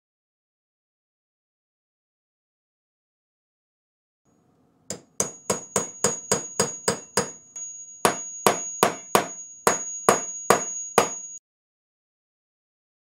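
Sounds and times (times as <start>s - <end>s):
hammer striking metal spike: 4.9s - 11.4s.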